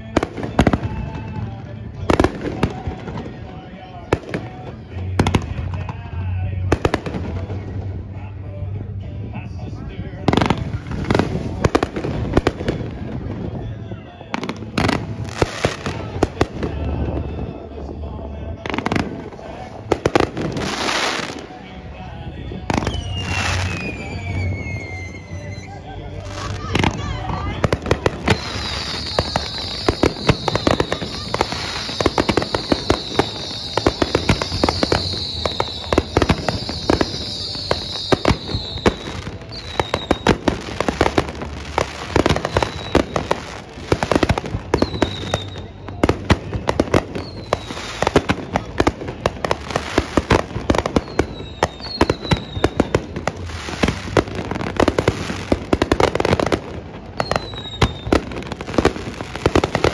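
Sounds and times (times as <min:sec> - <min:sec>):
fireworks bangs and pops: 0:00.0 - 0:09.4, 0:10.2 - 0:21.8, 0:22.4 - 0:25.7, 0:26.3 - 0:59.9
firework whistles: 0:22.7 - 0:59.9.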